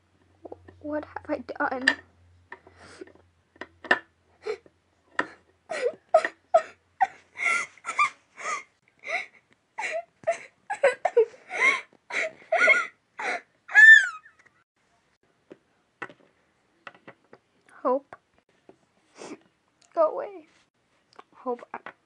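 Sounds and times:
girl sobbing and wailing: 0:05.7 - 0:14.4.

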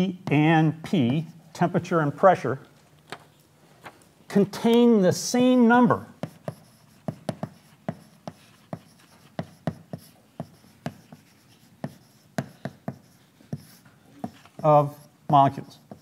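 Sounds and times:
chalk tapping and scratching on blackboard: 0:00.2 - 0:01.4, 0:05.5 - 0:16.0.

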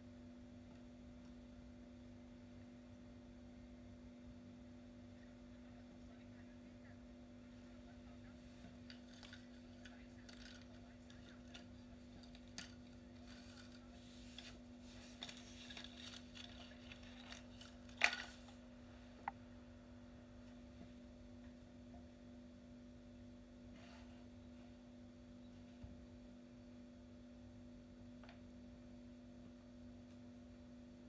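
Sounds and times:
steady low hum: 0:00.0 - 0:31.0
small objects clicking and rustling: 0:08.7 - 0:18.6.

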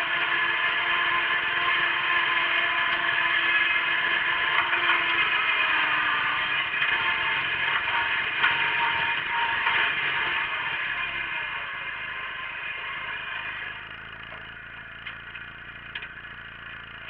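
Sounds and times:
tractor engine running under load: 0:00.0 - 0:17.0.

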